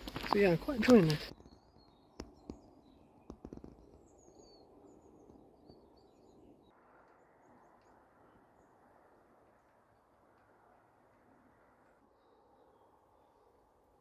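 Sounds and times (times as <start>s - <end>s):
faint birds chirping: 0.0s - 14.0s.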